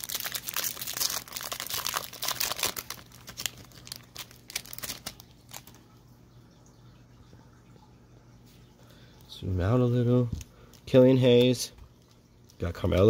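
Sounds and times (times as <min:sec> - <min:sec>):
foil pack tearing and crinkling: 0:00.0 - 0:05.8.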